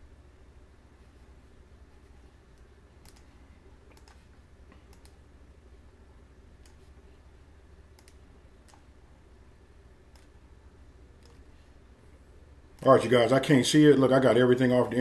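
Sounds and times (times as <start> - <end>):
faint low hum: 0.0 - 15.0
computer mouse clicking: 2.5 - 5.2, 6.6 - 7.0, 7.9 - 8.9, 10.1 - 10.4, 11.2 - 11.5.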